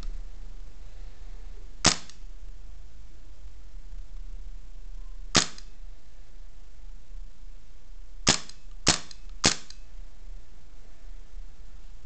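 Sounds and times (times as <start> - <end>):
airsoft pistol shots: 1.8 - 2.2, 5.3 - 5.7, 8.2 - 9.8.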